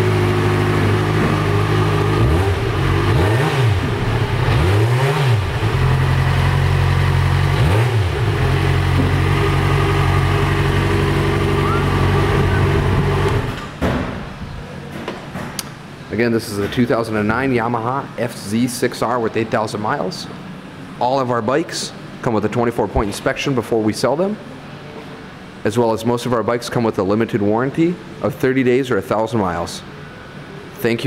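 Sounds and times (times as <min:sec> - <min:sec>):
motorcycle engine idling and revving: 0:00.0 - 0:13.7.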